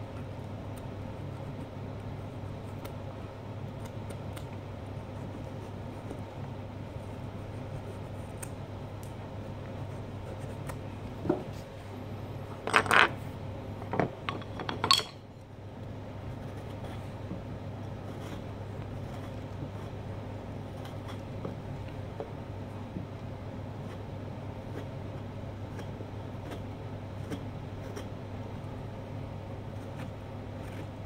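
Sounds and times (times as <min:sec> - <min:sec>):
steady low hum: 0:00.0 - 0:31.0
carving knives clinking: 0:14.3 - 0:15.2.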